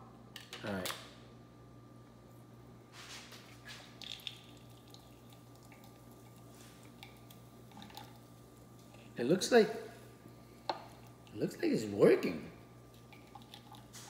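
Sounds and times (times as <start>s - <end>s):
faint steady hum: 0.0s - 14.0s
juice dripping and squishing: 3.1s - 11.5s, 12.6s - 14.0s.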